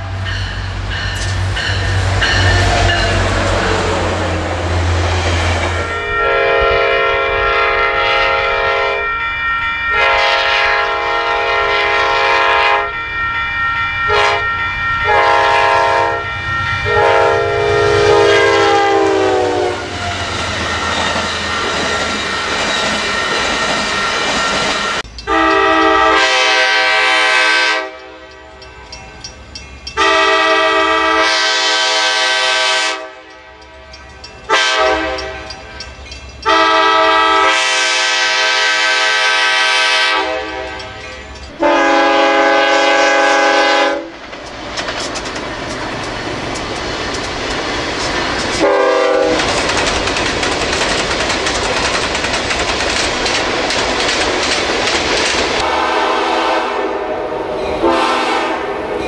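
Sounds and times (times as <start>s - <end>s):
train passing: 0.0s - 59.0s
locomotive air horn blasts: 5.7s - 9.3s, 9.9s - 13.0s, 14.1s - 20.0s, 25.3s - 28.6s, 30.0s - 33.6s, 34.5s - 35.6s, 36.4s - 41.0s, 41.6s - 44.1s, 48.6s - 49.5s, 55.6s - 58.9s.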